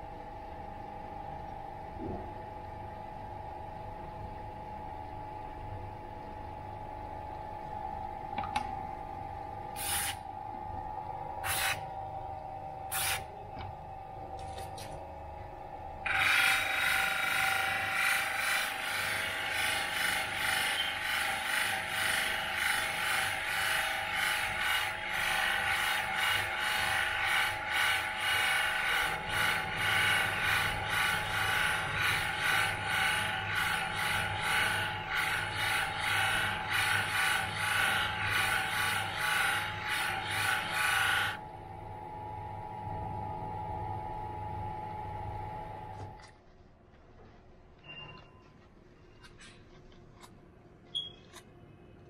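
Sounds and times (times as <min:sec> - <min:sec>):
polishing wheel humming: 0:16.0 - 0:41.5.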